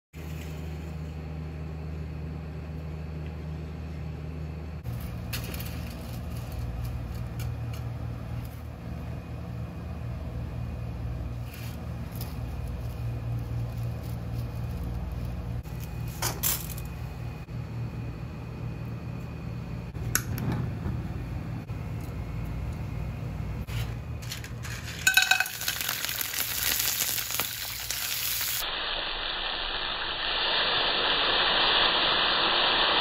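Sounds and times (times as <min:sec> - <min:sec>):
low mechanical hum: 0:00.2 - 0:28.7
metal cookware clinking: 0:24.8 - 0:25.9.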